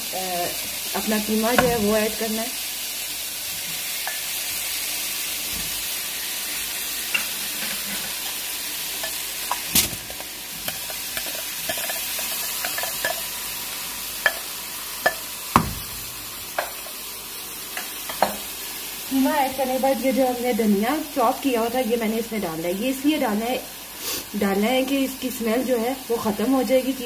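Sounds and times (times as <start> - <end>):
steady hiss: 0.0 - 21.4, 23.2 - 27.0
soft knocks and clicks in wok: 15.0 - 16.8.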